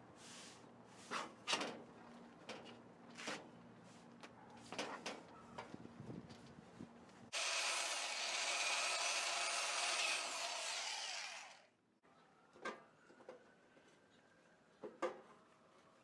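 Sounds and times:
electric drill boring metal: 7.3s - 11.7s.

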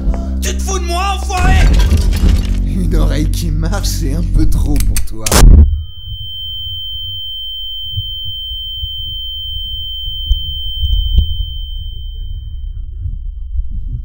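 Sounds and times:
dull low rumble: 1.4s - 14.0s
high-pitched ringing tone: 5.6s - 14.0s.

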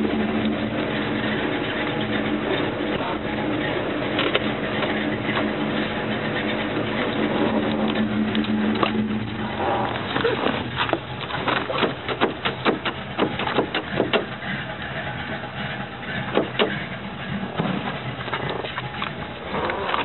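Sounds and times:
car engine running low: 0.0s - 20.0s
irregular clicks and knocks: 9.9s - 14.4s, 16.2s - 17.0s.

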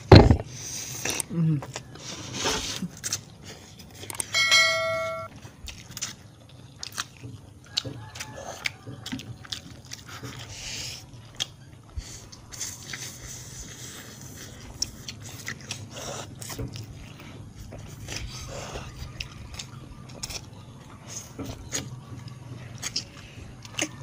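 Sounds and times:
noodles slurped and chewed: 0.5s - 4.3s, 5.3s - 24.0s
bell-like chime: 4.3s - 5.3s.

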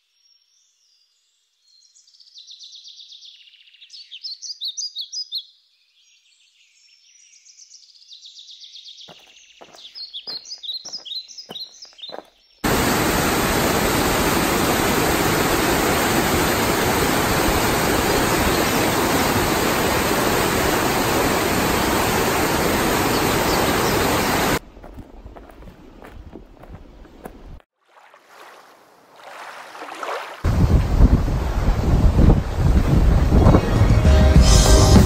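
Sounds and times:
birds chirping: 1.8s - 27.6s
river rushing over rapids: 12.6s - 24.6s.

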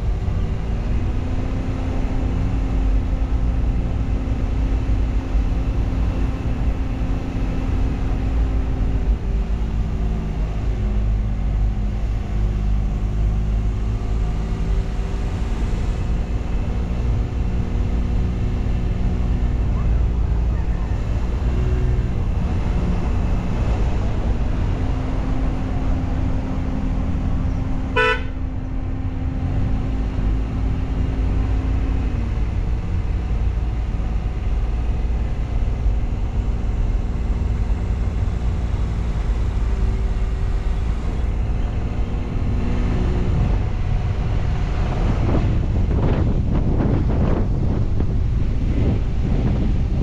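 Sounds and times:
motorcycle engine drone: 0.0s - 50.0s
wind and road rumble: 0.0s - 50.0s
horn toot: 27.9s - 28.4s.

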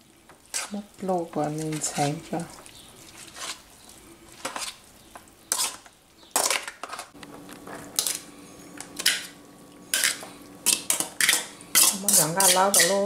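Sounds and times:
metal spoon scraping colander: 3.1s - 3.6s, 5.5s - 5.9s, 9.9s - 13.0s.

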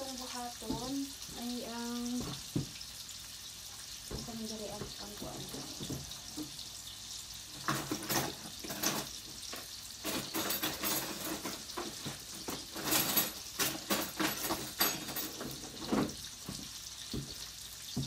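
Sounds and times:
baking utensils rustling and scraping: 7.6s - 17.3s.

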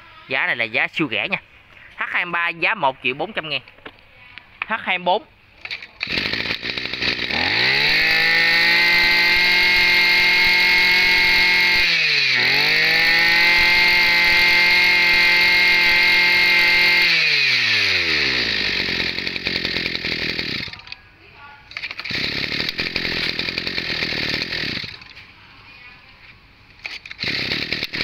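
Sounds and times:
two-stroke brushcutter engine: 5.6s - 21.0s, 21.7s - 25.2s, 26.8s - 28.0s.

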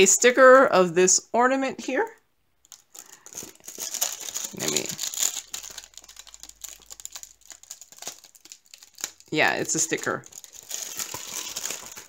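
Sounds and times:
plastic packaging crinkling: 2.6s - 12.0s.

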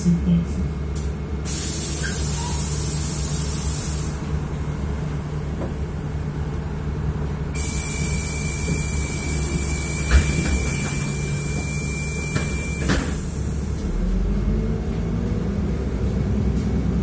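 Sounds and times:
bus engine idling: 0.0s - 17.0s
compressed air hiss: 1.4s - 4.2s.

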